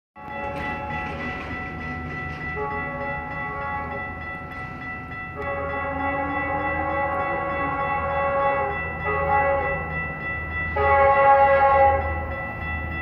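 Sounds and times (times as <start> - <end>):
train low rumble: 0.2 - 13.0
train horn chord: 2.6 - 4.0, 5.4 - 10.0, 10.7 - 12.4.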